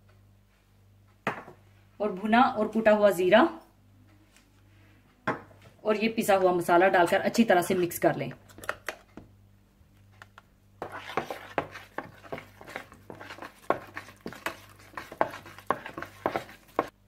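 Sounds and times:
utensil scraping and clinking bowl: 10.8s - 17.0s.

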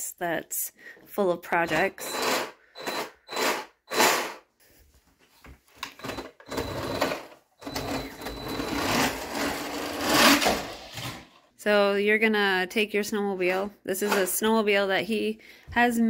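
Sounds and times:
toy snowmobile motor and track: 2.0s - 4.4s, 6.0s - 11.0s.

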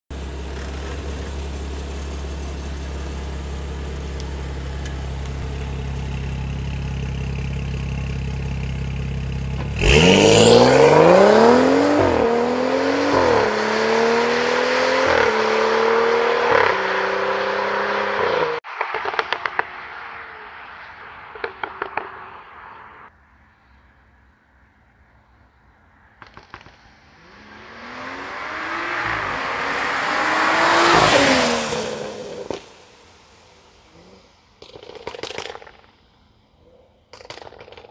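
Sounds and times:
car engine idling and revving: 0.1s - 23.2s, 24.0s - 36.1s
exhaust pops and crackles: 18.6s - 19.9s, 21.2s - 22.6s, 26.1s - 27.1s, 34.6s - 36.0s, 37.1s - 37.9s.

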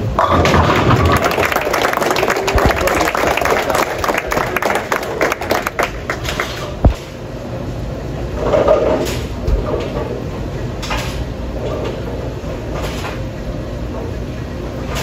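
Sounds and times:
people clapping: 0.7s - 6.8s.

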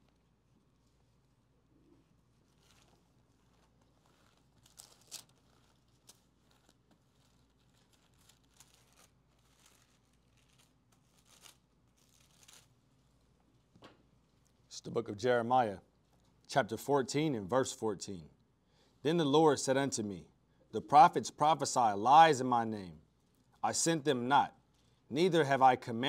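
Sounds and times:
pages rustling and flicking: 2.4s - 13.2s.

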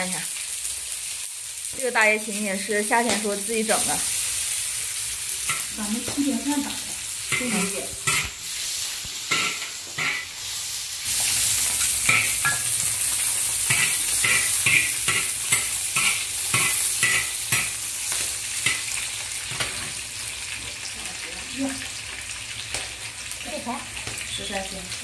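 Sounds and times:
food sizzling in hot oil: 0.0s - 25.0s
metal spatula scraping wok: 5.4s - 13.0s, 13.6s - 17.8s.

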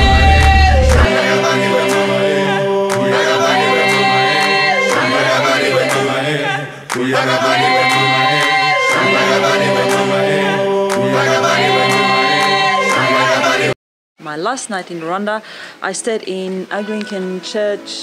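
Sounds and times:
choir singing a cappella: 0.0s - 13.8s.

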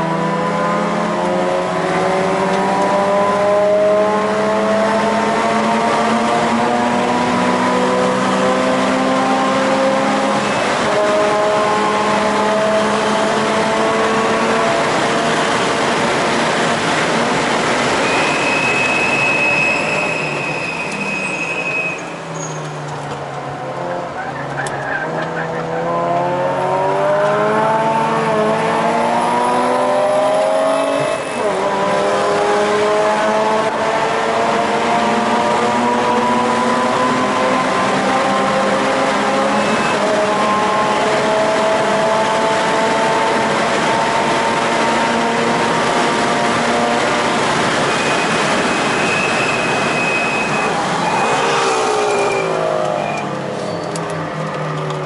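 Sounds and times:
brief high squeal: 18.0s - 22.7s, 47.9s - 54.0s
rotary engine revving: 24.3s - 55.0s.

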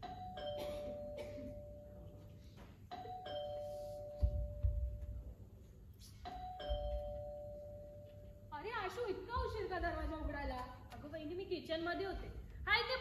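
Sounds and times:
two-tone doorbell chime: 0.0s - 2.0s, 2.9s - 5.0s, 6.3s - 8.4s.

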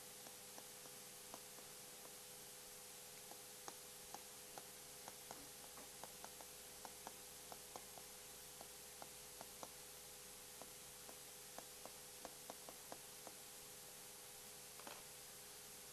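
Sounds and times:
low electrical hum: 0.0s - 15.9s
steady hiss: 0.0s - 15.9s
stylus tapping on pen tablet: 3.2s - 9.8s, 10.6s - 13.4s.

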